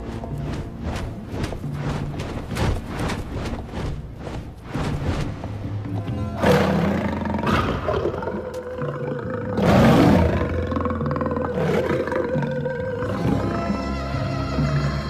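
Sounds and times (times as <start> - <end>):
cinematic music with held note: 0.0 - 15.0
lion roar: 6.4 - 13.4.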